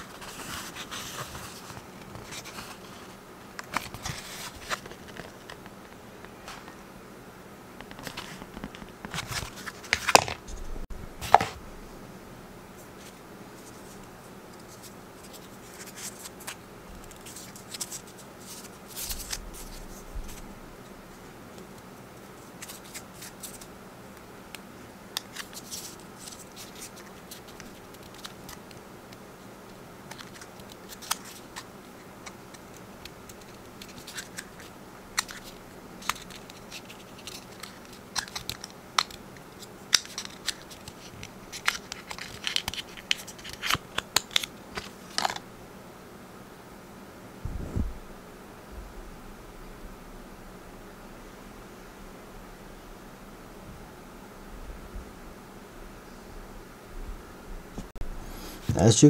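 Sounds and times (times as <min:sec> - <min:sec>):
paper packaging rustling: 0:30.1 - 0:45.4.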